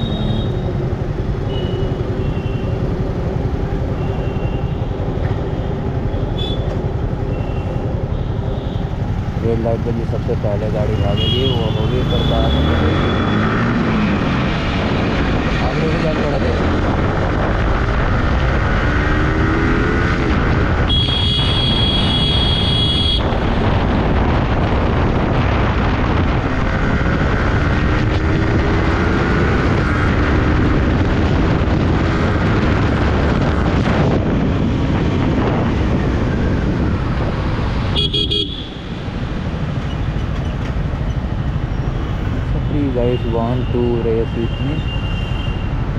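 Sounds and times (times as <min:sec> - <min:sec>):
wind and road noise: 0:00.0 - 0:45.9
vehicle horn: 0:06.4 - 0:06.8, 0:11.0 - 0:13.1, 0:20.9 - 0:23.3, 0:37.9 - 0:38.9.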